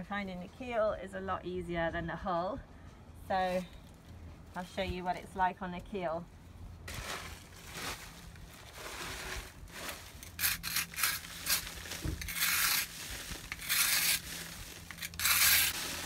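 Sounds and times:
hand scraper rasping on paint: 0:10.2 - 0:16.0.

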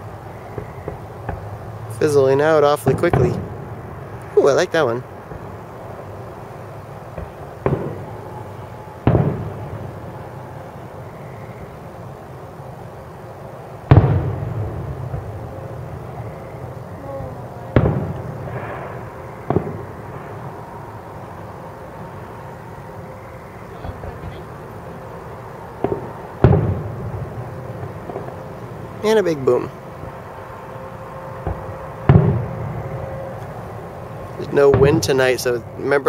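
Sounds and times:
distant firework booms: 0:00.5 - 0:05.6, 0:07.1 - 0:10.3, 0:13.9 - 0:20.6, 0:25.8 - 0:28.5, 0:31.4 - 0:33.2, 0:34.4 - 0:35.4.

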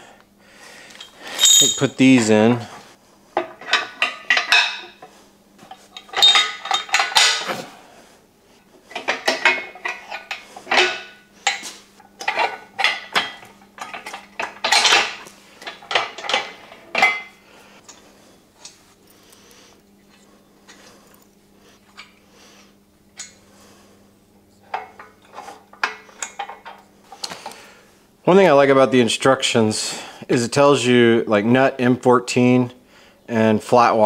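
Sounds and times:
metal bolts and nuts clinking: 0:01.0 - 0:02.4, 0:05.7 - 0:07.6, 0:08.9 - 0:17.3.

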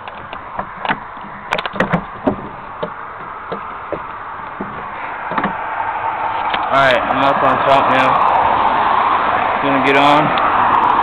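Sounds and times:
knocks on wooden platform: 0:00.5 - 0:05.6.

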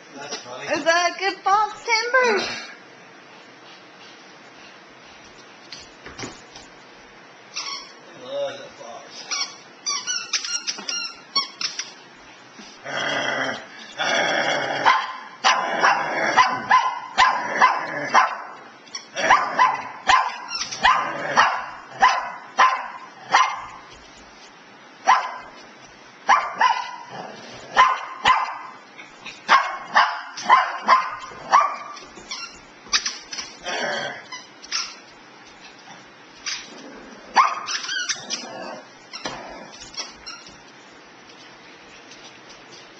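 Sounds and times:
dogs barking: 0:14.8 - 0:18.6, 0:19.2 - 0:23.9, 0:25.0 - 0:25.6, 0:26.2 - 0:28.8, 0:29.4 - 0:32.0, 0:37.3 - 0:37.8.

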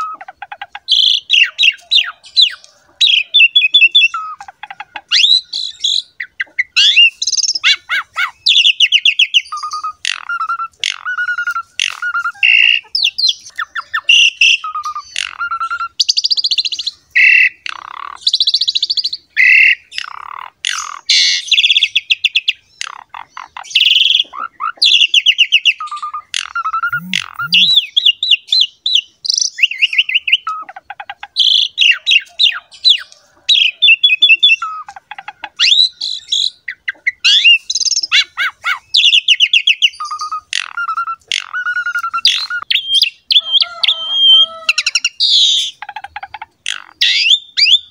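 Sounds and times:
starling singing: 0:00.0 - 0:47.9.

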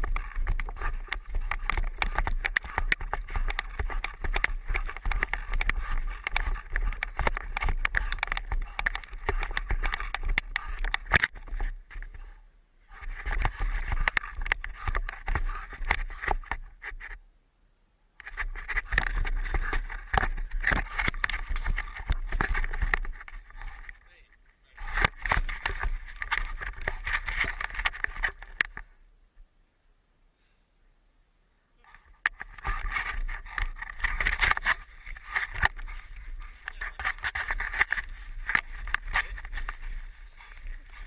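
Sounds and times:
stick rattling and scraping: 0:00.0 - 0:17.2, 0:18.2 - 0:28.9, 0:31.8 - 0:41.0.

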